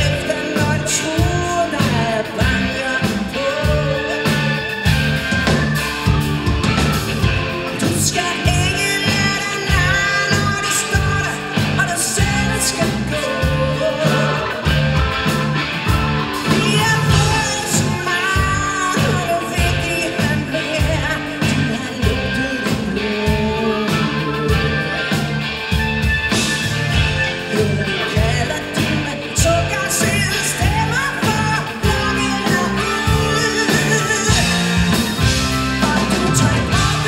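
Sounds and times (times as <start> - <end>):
woman singing: 0.0 - 4.8, 7.8 - 15.0, 16.4 - 25.3, 26.9 - 37.0
drums: 0.0 - 37.0
electric guitars: 0.0 - 37.0
keyboard: 0.0 - 37.0.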